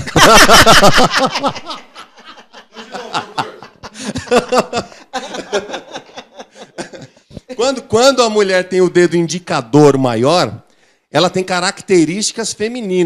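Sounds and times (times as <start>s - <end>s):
man and woman laughing: 0.0s - 7.4s.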